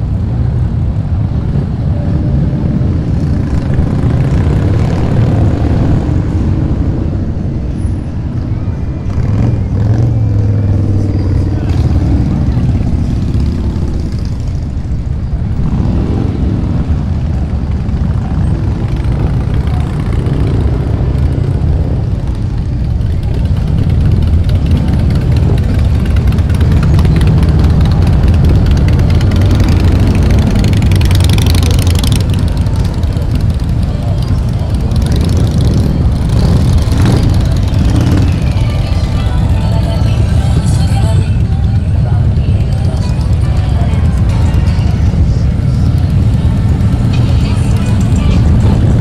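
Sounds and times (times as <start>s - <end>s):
motorcycle engines rumbling: 0.0s - 49.0s
motorcycle engine revving: 15.5s - 41.2s.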